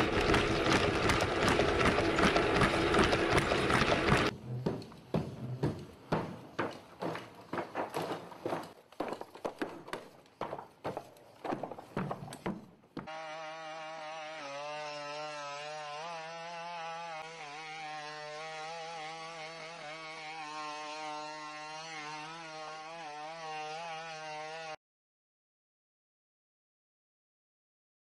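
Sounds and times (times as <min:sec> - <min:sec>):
robot feet stepping on rocks: 0:06.6 - 0:13.1.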